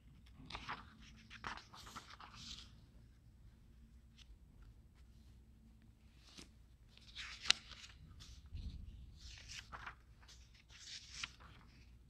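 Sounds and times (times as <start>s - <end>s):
book pages rustling: 0.0s - 2.9s, 6.0s - 12.0s.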